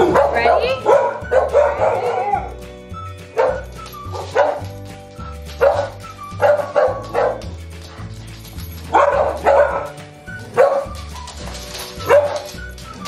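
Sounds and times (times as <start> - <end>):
dog barking: 0.0 - 2.5, 3.4 - 4.8, 5.5 - 8.1, 8.9 - 11.1, 12.0 - 12.6
upbeat background music: 0.0 - 13.0.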